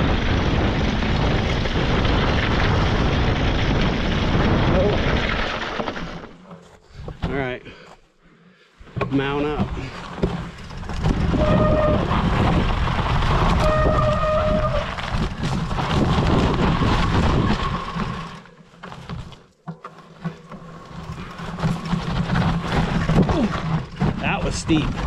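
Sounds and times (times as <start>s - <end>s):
tyre and wind rumble: 0.0s - 7.6s, 8.8s - 25.0s
brake squeals: 11.2s - 12.4s, 13.4s - 15.2s.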